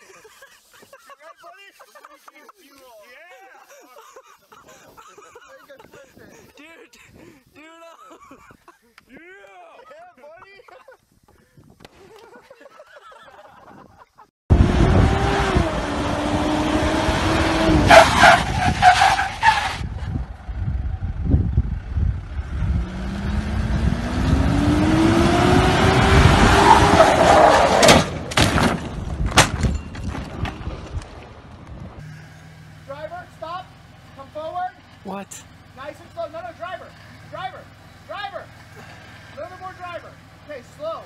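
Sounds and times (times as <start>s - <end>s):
engine revving hard: 14.5s - 18.8s, 22.3s - 28.2s
tyre squeal: 17.8s - 19.9s, 26.6s - 28.2s.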